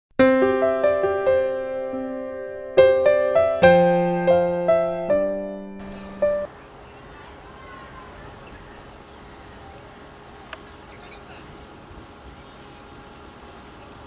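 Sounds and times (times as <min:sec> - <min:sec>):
steady hiss: 0:05.7 - 0:14.0
faint bird calls: 0:05.8 - 0:14.0
insects chirping: 0:05.8 - 0:14.0.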